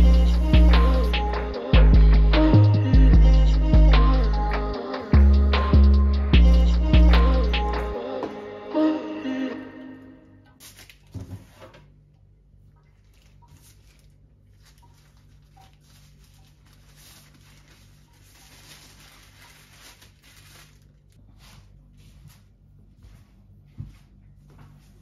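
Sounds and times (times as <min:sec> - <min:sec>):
steady low hum: 0:00.0 - 0:08.2.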